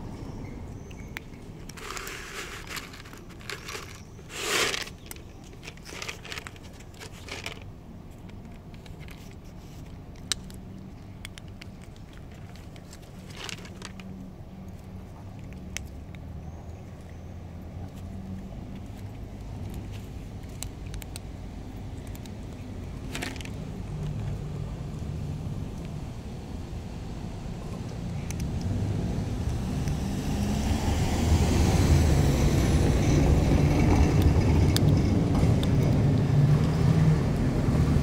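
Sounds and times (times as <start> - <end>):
kibble rattling out of plastic bottle: 1.6 - 7.7, 11.5 - 14.1, 23.0 - 23.6
cat crunching dry kibble: 1.6 - 16.2, 17.8 - 24.5.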